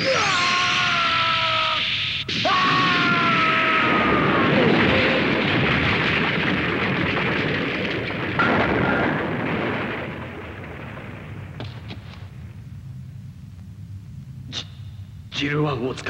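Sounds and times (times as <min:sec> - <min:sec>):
explosion roar: 0:00.0 - 0:12.6.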